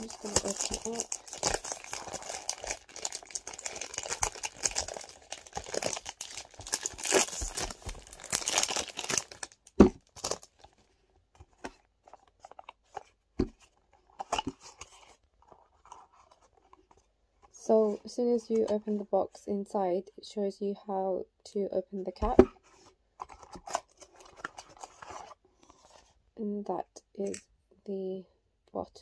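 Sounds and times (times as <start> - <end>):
cellophane wrapper crinkling: 0.0 - 10.8, 11.4 - 17.1, 23.2 - 25.4.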